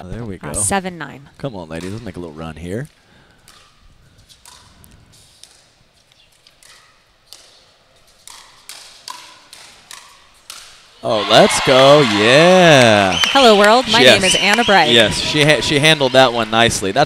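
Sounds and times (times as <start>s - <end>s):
paddles striking plastic ball: 8.2s - 10.8s.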